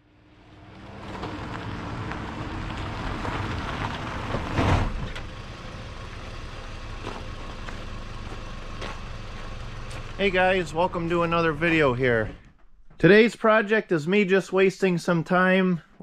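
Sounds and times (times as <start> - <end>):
car engine running: 0.1 - 12.5
tyres crunching on gravel: 0.7 - 12.3.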